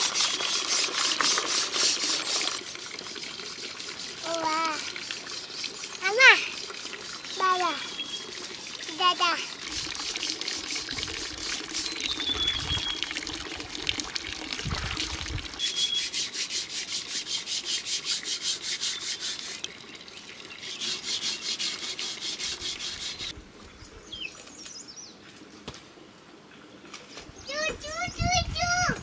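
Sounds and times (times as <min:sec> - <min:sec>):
bird chirps: 0:07.3 - 0:08.4, 0:11.8 - 0:13.1, 0:15.6 - 0:16.1.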